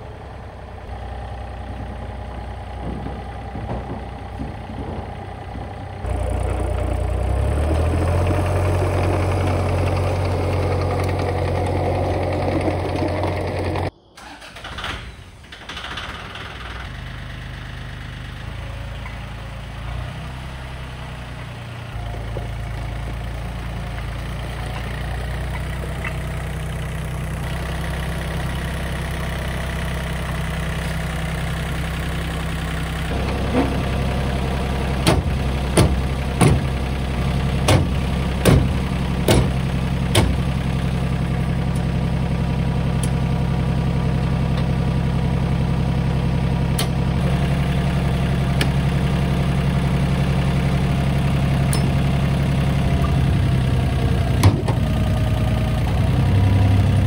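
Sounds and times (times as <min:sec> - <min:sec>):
diesel tractor engine idling: 0:00.0 - 0:57.0.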